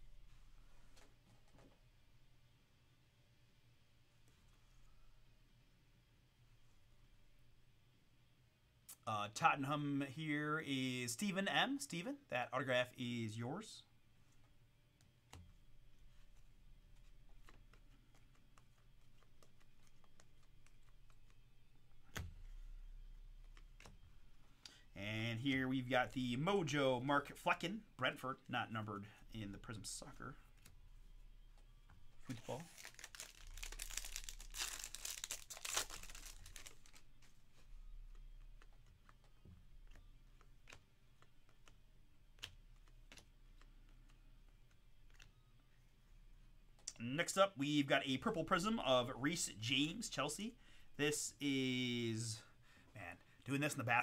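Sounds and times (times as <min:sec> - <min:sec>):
trading cards clicking: 0:38.1 - 0:45.3.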